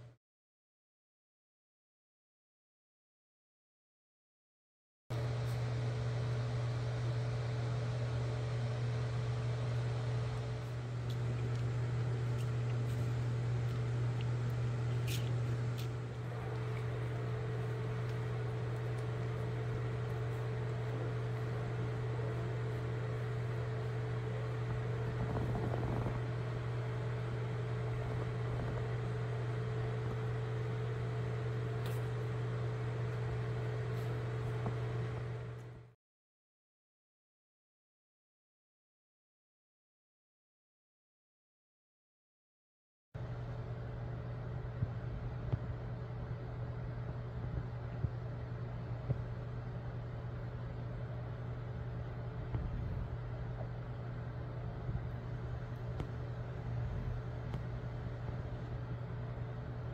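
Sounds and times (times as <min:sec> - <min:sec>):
low hum: 0:05.1 - 0:36.0, 0:43.2 - 0:59.9
light hiss: 0:10.4 - 0:30.5.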